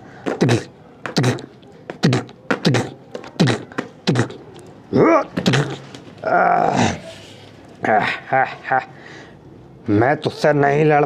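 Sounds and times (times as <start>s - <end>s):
man making fight noises: 0.2s - 7.0s.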